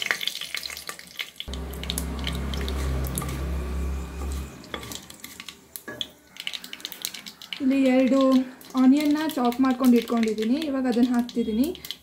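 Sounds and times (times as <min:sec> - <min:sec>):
spices sizzling in hot oil: 0:00.0 - 0:12.0
low hum: 0:01.5 - 0:05.2.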